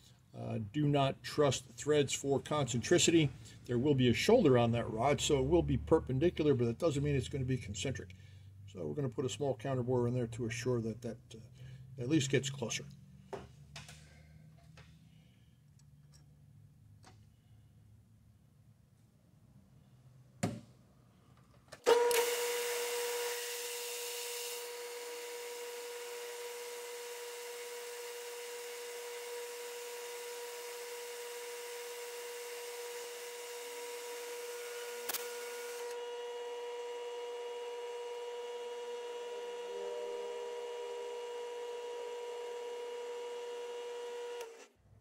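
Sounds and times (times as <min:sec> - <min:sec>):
metal lathe whine: 0:21.9 - 0:44.6.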